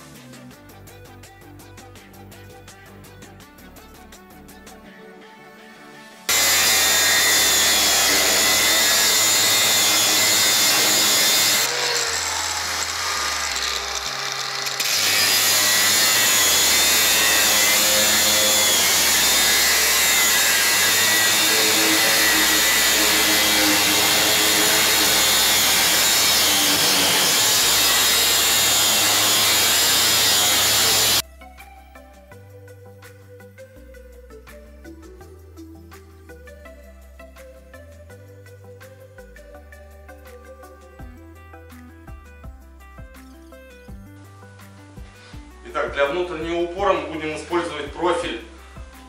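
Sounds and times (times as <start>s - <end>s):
angle grinder cutting steel: 6.3s - 31.2s.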